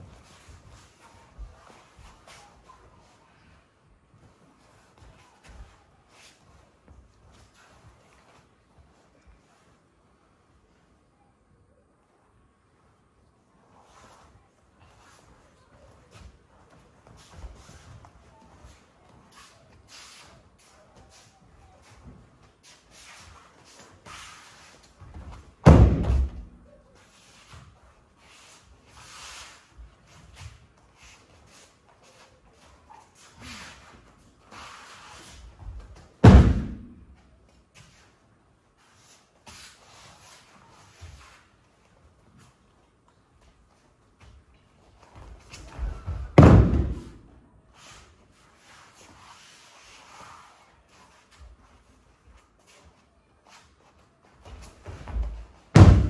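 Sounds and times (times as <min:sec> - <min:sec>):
body thudding onto mats: 0:25.6 - 0:26.5, 0:36.2 - 0:37.0, 0:45.9 - 0:47.2, 0:55.7 - 0:56.0.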